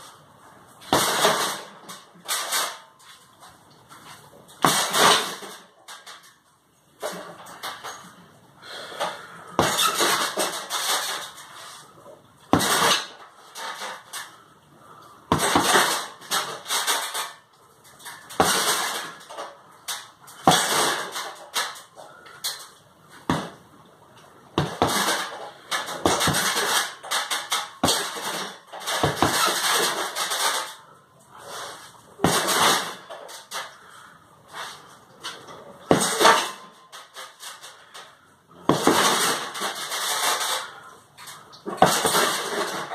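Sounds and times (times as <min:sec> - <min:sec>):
punches hitting heavy bag: 0:04.6 - 0:05.3, 0:09.6 - 0:10.2, 0:12.5 - 0:13.1, 0:15.3 - 0:16.0, 0:18.4 - 0:19.0, 0:20.4 - 0:21.0, 0:23.3 - 0:23.6, 0:24.6 - 0:25.3, 0:26.0 - 0:26.7, 0:27.8 - 0:29.7, 0:32.2 - 0:33.0, 0:35.9 - 0:36.4, 0:38.7 - 0:39.4, 0:41.8 - 0:42.4.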